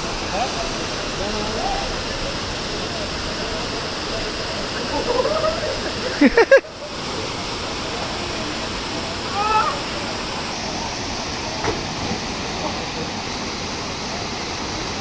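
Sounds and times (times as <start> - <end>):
waterfall pouring over rocks: 0.0 - 15.0.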